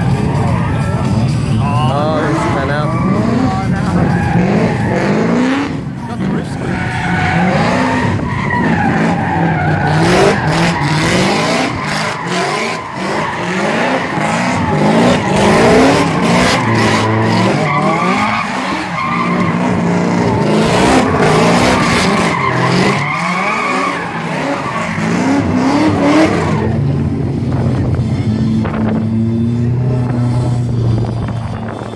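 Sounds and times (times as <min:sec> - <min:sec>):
car engines revving hard: 0:00.0 - 0:31.9
tyres squealing: 0:06.5 - 0:26.7.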